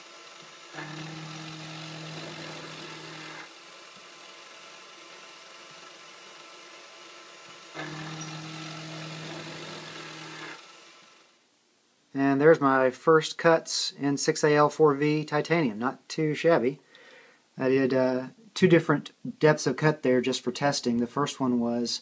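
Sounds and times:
milling machine cutting metal: 0.0s - 10.9s.

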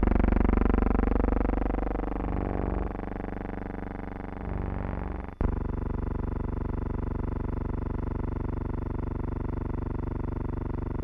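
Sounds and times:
instrumental music with sustained chords: 0.0s - 7.2s.

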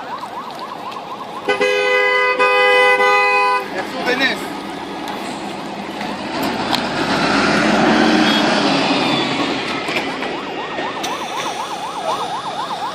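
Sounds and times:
emergency siren yelping: 0.0s - 3.8s, 6.7s - 12.9s
traffic noise: 0.0s - 12.9s
vehicle passing close by: 3.6s - 11.0s.

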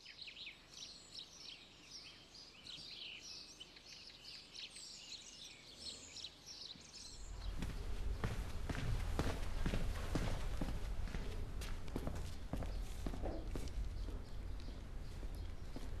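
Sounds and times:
birds chirping and trilling: 0.0s - 16.0s
low rumble: 7.1s - 16.0s.

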